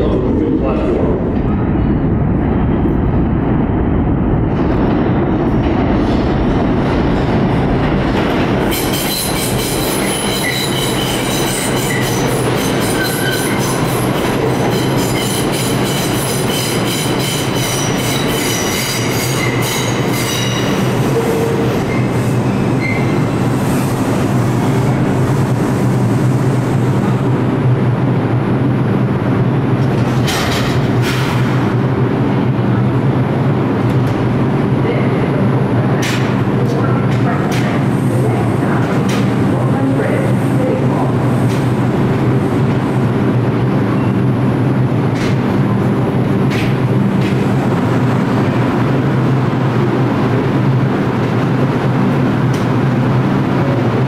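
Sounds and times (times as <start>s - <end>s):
train hum: 0.0s - 54.0s.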